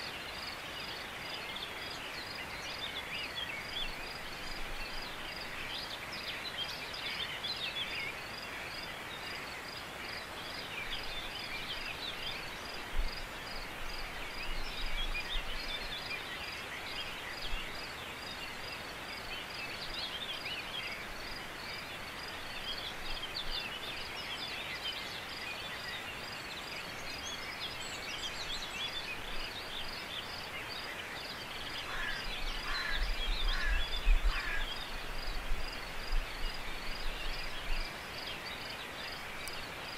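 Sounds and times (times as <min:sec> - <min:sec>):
small birds chirping: 0:00.0 - 0:39.9
wind buffeting microphone: 0:32.2 - 0:37.9.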